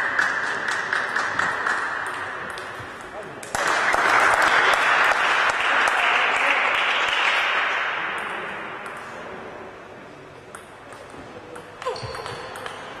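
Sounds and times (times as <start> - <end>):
audience applause in a hall: 0.0 - 1.9, 3.5 - 7.9.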